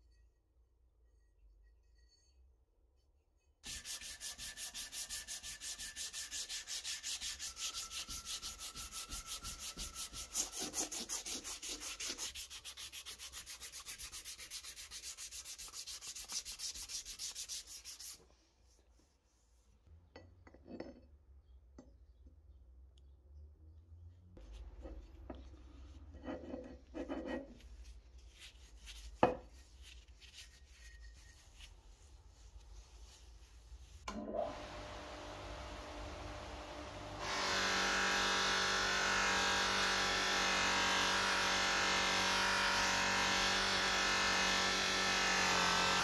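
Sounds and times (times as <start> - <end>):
sandpaper rubbing on metal: 3.6 - 18.2.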